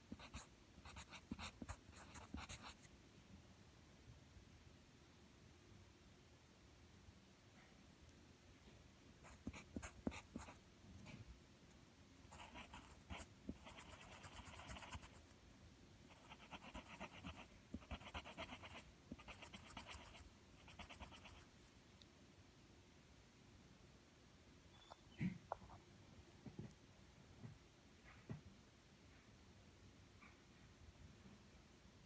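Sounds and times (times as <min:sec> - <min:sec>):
pencil scribbling on paper: 0:00.1 - 0:02.8, 0:09.2 - 0:10.6, 0:12.3 - 0:15.2, 0:16.1 - 0:21.4.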